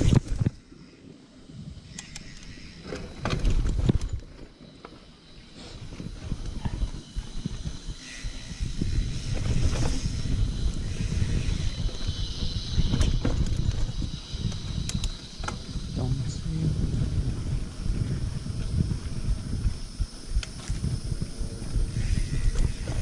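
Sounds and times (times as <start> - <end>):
wind on microphone: 0.0 - 0.7, 5.4 - 23.0
bike rattling over bumps: 0.0 - 1.9, 2.5 - 23.0
bike tyres rumbling on dirt: 0.0 - 1.9, 2.6 - 23.0.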